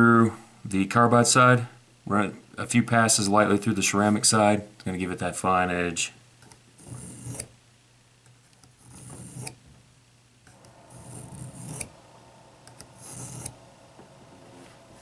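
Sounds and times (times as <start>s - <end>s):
knife blade scraping sharpener: 6.8s - 7.5s, 8.8s - 9.6s, 10.9s - 12.0s, 12.8s - 13.6s.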